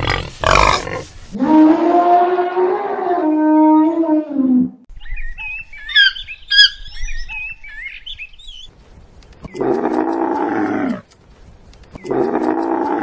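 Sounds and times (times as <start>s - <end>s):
birds chirping: 4.9s - 10.4s, 11.6s - 13.0s
camel calling: 12.0s - 13.0s.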